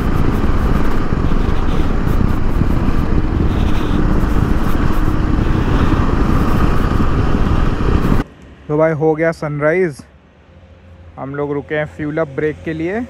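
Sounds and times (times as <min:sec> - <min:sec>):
motorcycle riding at speed: 0:00.0 - 0:08.3.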